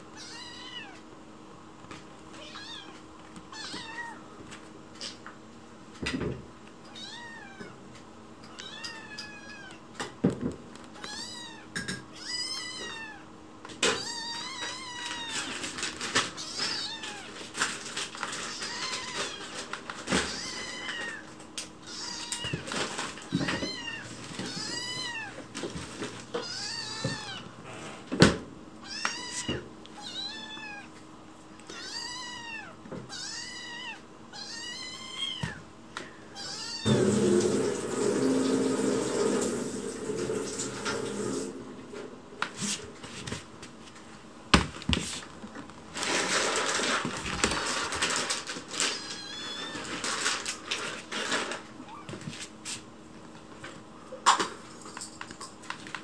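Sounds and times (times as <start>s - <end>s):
kitten mewing: 36.3s - 37.1s.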